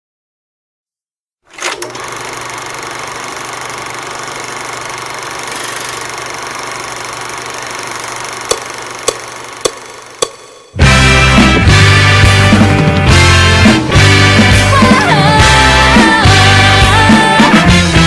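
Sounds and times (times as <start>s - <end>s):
count-in clicks: 8.5s - 10.8s
rock band playing: 9.7s - 18.0s.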